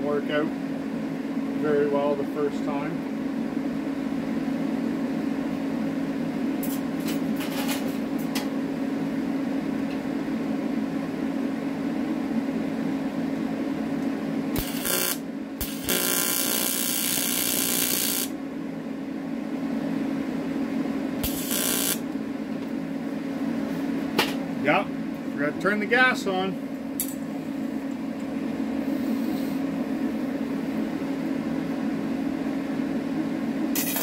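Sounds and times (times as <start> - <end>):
steady low hum: 0.0 - 34.0
welding arc hissing crackle: 14.5 - 18.4, 21.2 - 22.0.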